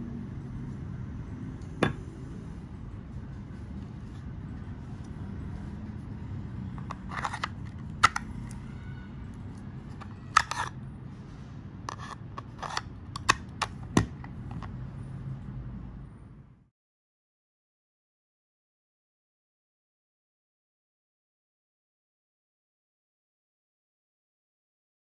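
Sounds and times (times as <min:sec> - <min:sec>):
knife scraping in sheath: 0:11.9 - 0:12.9.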